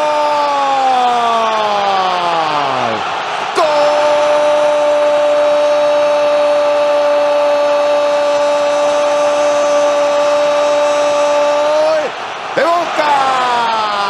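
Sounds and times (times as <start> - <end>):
commentator's drawn-out goal cry: 0.0 - 14.0
crowd noise: 0.0 - 14.0.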